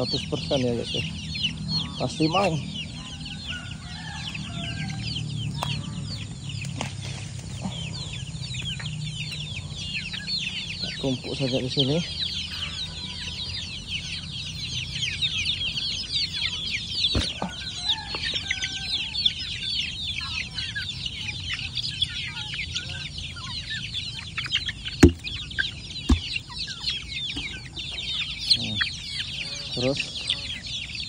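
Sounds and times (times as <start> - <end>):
chickens clucking: 0.0 - 31.0
chicks peeping: 0.0 - 31.0
sharp knocks: 25.0 - 25.3, 26.1 - 26.3.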